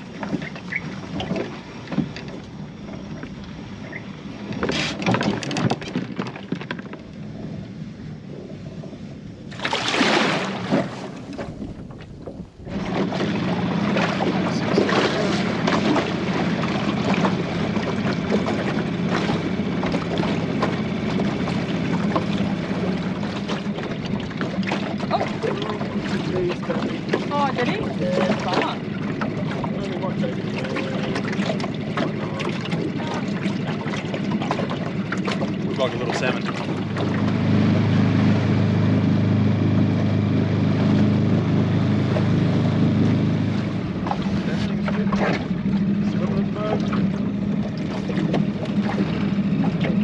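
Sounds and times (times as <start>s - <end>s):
water noise: 0.0s - 50.0s
steady low hum: 7.0s - 50.0s
wind on microphone: 7.2s - 30.1s.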